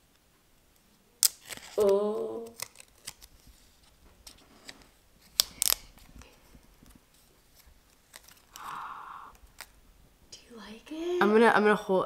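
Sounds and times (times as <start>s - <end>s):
plastic film peeling crackles: 1.2s - 9.8s.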